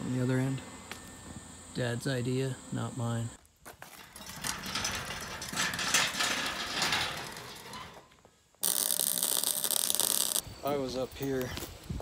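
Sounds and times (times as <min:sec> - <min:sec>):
loud steady hiss: 0:00.0 - 0:03.4, 0:08.6 - 0:12.0.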